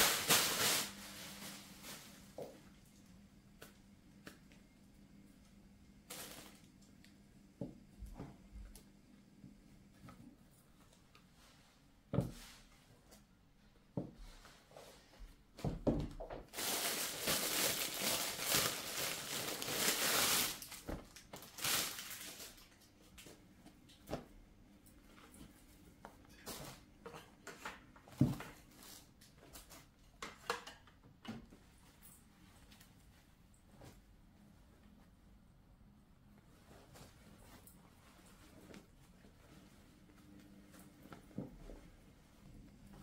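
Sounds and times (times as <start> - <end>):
rustling: 16.5 - 22.7.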